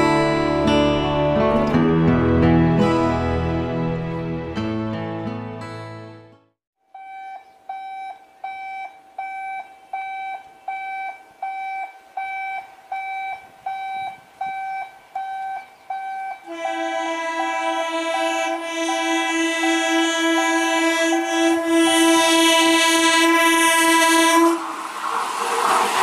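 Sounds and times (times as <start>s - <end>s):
level crossing alarm beeping: 7.0s - 22.2s
train horn: 16.3s - 24.8s.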